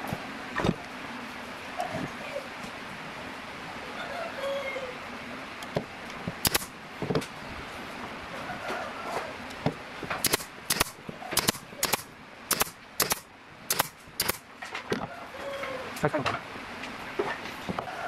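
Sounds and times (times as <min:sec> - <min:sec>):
pneumatic nailer firing into wood: 0:06.4 - 0:06.7, 0:10.1 - 0:14.5.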